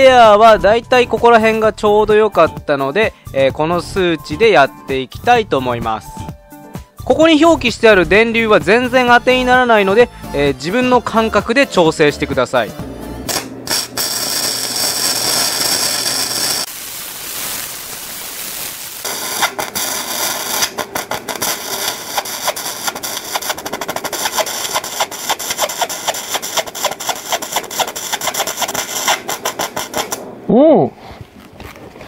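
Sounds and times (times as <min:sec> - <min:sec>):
welding arc hissing and crackling: 0:13.3 - 0:30.3.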